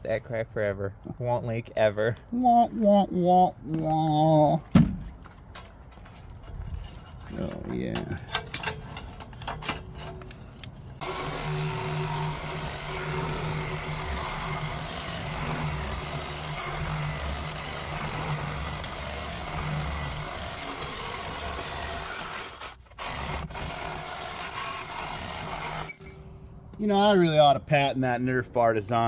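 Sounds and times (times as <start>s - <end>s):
reciprocating saw cutting steel tube: 11.0s - 26.2s.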